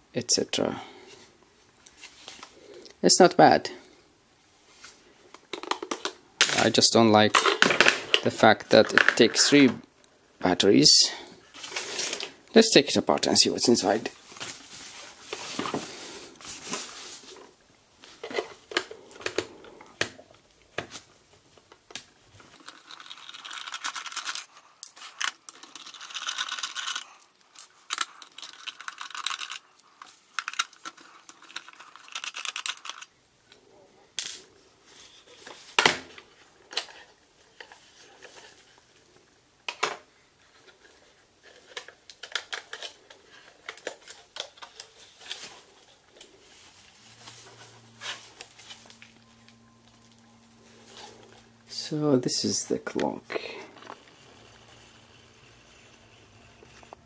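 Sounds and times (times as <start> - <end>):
scraping and rustling plastic: 11.5 - 12.4, 13.2 - 20.2, 20.8 - 33.2, 39.7 - 57.0.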